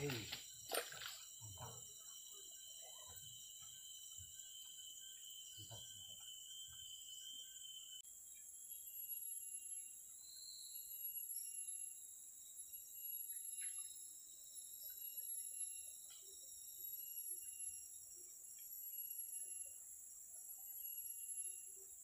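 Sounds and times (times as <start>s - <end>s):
insects chorus: 0.0s - 22.0s.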